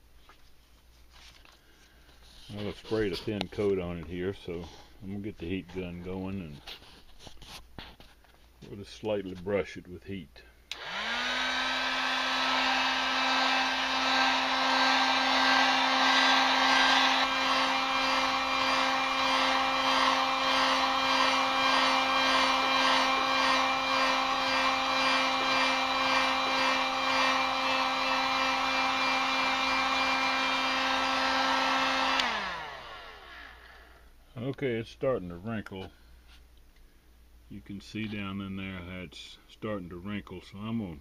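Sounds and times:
motor winding down: 10.7 - 33.8
heat gun blowing: 10.7 - 34.1.

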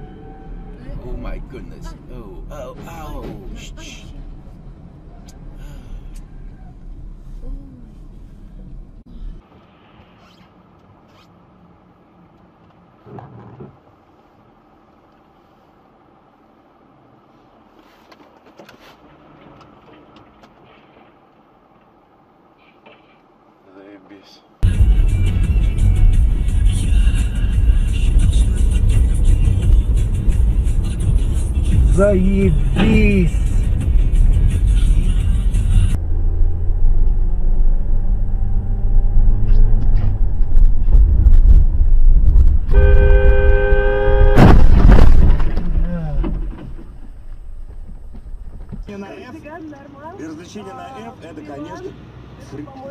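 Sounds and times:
two-tone vehicle horn: 0.0 - 0.8, 42.7 - 44.5
vehicle road and engine noise: 0.0 - 52.9
sudden loud bang: 44.2 - 47.0.

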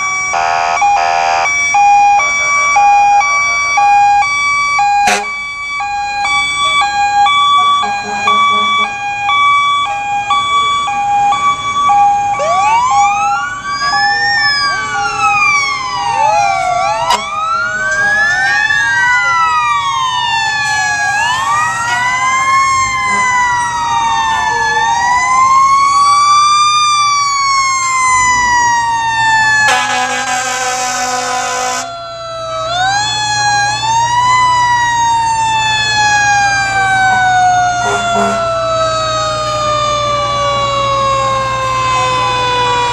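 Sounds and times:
fire engine sirens wailing: 0.0 - 42.9
truck engines rumbling: 0.0 - 42.9
loud horn blast: 0.4 - 1.5, 5.0 - 5.4, 7.8 - 9.0, 17.1 - 17.3, 29.7 - 31.9, 37.0 - 38.5.

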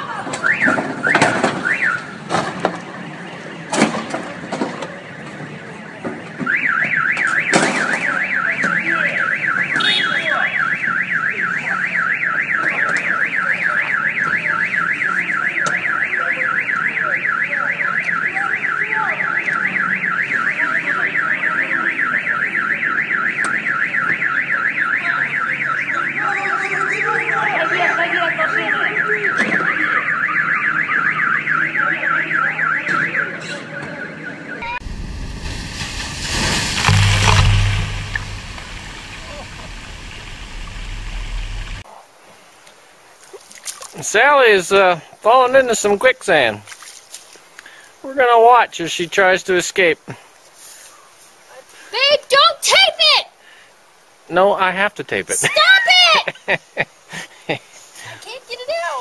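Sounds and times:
sharp knocks: 34.9 - 41.8.

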